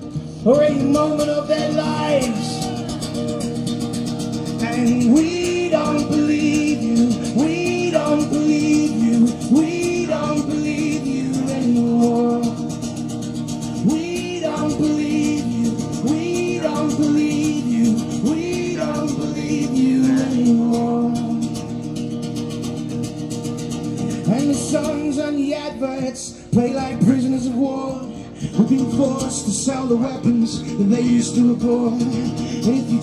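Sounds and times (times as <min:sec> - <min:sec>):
man singing: 0:00.0 - 0:03.6, 0:04.5 - 0:12.8, 0:13.8 - 0:21.6, 0:24.2 - 0:33.0
strummed acoustic guitar: 0:00.0 - 0:33.0.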